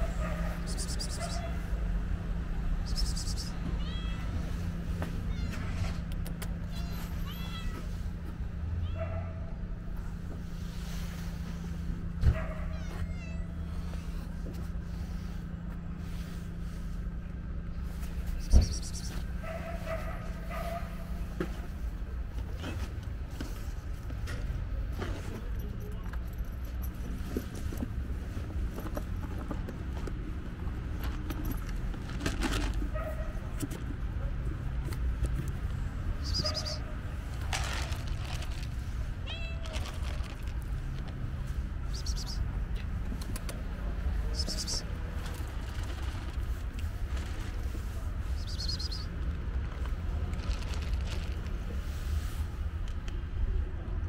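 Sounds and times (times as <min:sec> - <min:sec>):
cat meowing: 0:03.3 - 0:04.6, 0:06.6 - 0:08.0, 0:12.6 - 0:13.8, 0:39.2 - 0:40.1.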